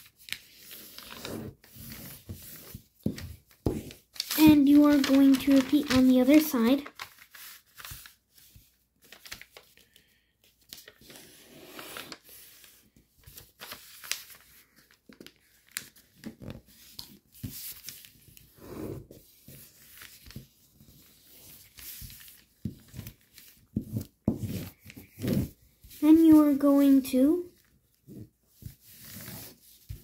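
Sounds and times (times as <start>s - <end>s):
foil paper crinkling as folded: 3.9s - 11.2s, 11.9s - 16.5s.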